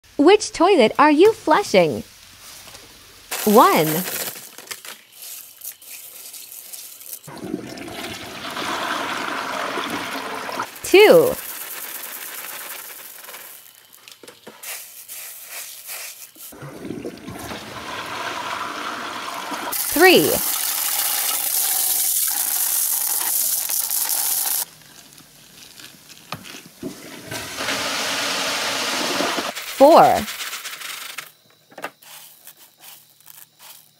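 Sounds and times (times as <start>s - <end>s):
pretzels pattering into toilet bowl: 3.3s - 7.3s, 9.7s - 16.3s, 29.5s - 31.3s
toilet flushing: 7.3s - 10.8s, 16.6s - 24.4s, 26.8s - 29.6s.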